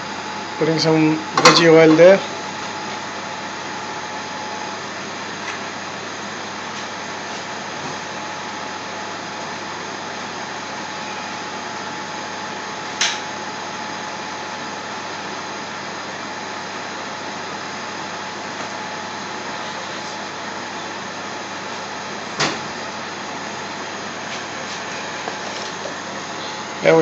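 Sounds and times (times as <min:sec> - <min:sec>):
gas cooker rushing: 0:00.0 - 0:27.0.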